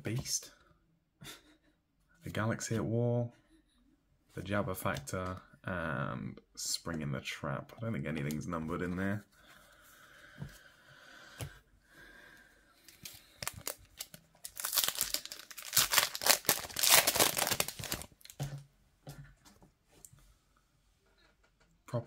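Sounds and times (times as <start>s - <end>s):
foil wrapper tearing and crinkling: 12.9s - 18.4s.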